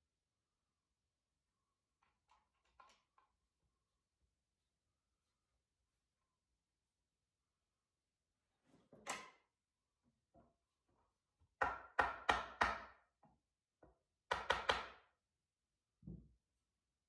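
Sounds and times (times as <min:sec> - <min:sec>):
hammer tapping on wood: 0:14.3 - 0:15.0.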